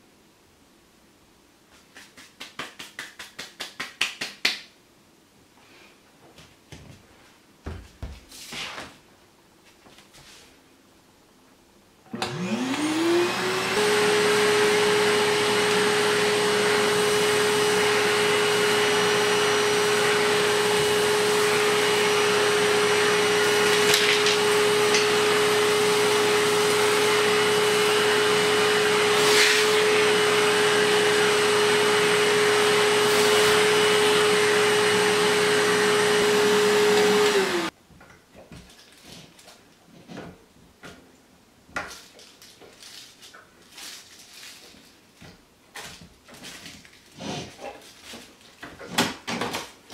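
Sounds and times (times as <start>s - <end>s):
vacuum cleaner motor whine: 12.1s - 37.7s.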